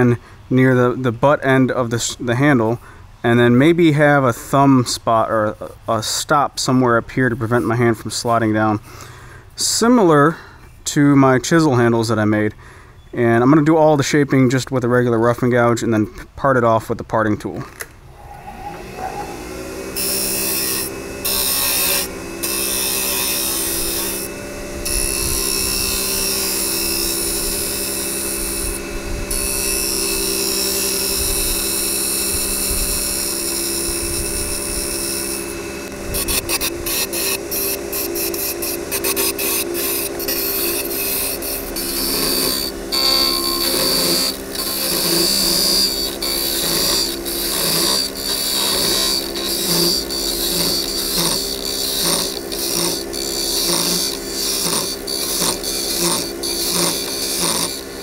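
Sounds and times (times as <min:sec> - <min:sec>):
lathe motor hum: 0:18.1 - 0:58.0
gouge shaving wood: 0:18.8 - 0:58.0.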